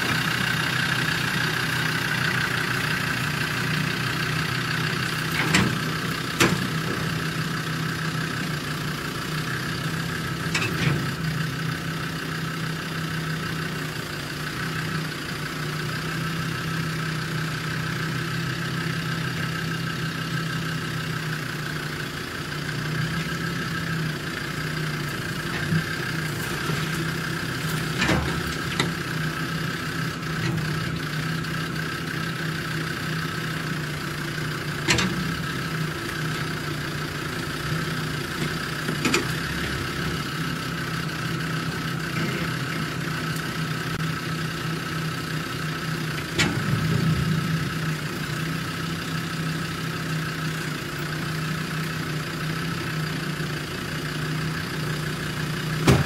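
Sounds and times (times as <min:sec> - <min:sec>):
engine running at low revs: 0:00.0 - 0:56.0.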